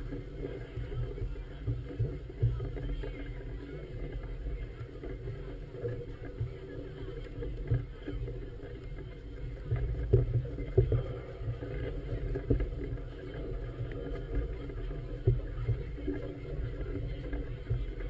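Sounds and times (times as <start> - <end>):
choppy water against a boat: 0.0 - 18.0.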